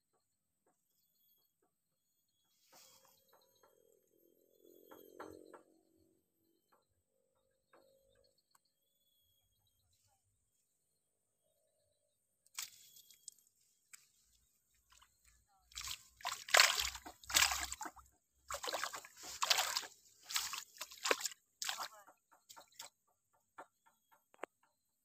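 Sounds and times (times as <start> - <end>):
fish splashing in water: 15.7 - 22.9.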